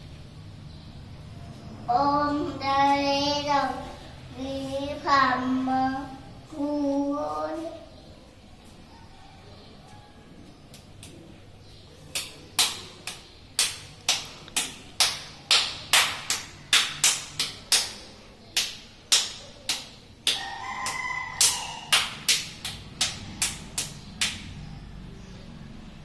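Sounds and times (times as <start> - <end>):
child clapping hands: 10.7 - 11.2, 12.1 - 24.5.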